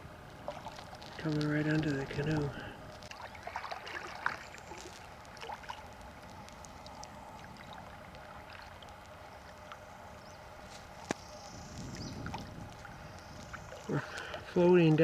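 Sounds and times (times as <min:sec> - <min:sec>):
water lapping against canoe: 0:00.3 - 0:14.6
light ticks: 0:04.5 - 0:09.8.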